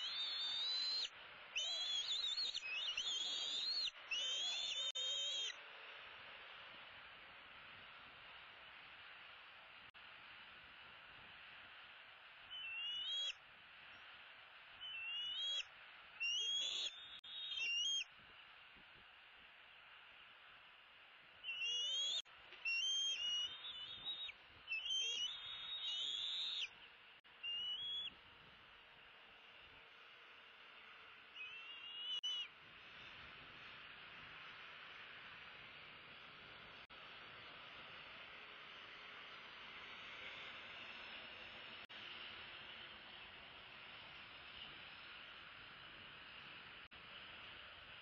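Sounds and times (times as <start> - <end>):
eagles whistling calls: 0.0 - 5.6, 12.5 - 13.4, 14.8 - 18.1, 21.4 - 26.7, 27.4 - 28.1, 31.4 - 32.5
faint steady hiss: 0.0 - 48.0.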